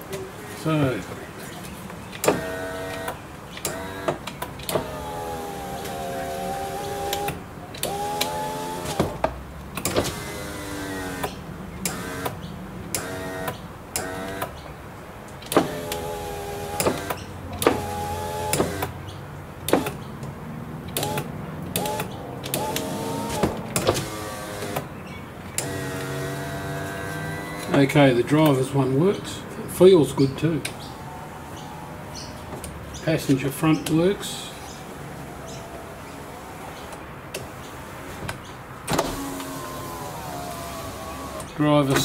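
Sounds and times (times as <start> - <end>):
power window motors whining: 2.1 - 14.6, 15.5 - 19.0, 20.9 - 24.9, 25.6 - 27.9, 34.6 - 42.0.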